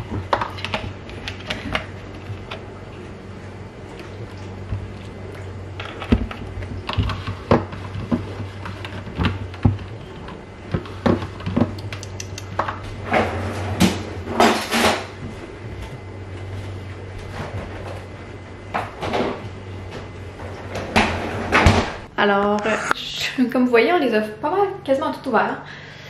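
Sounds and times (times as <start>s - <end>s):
freezer drawer rattling scrapes: 12.8s - 15.2s, 16.4s - 22.1s.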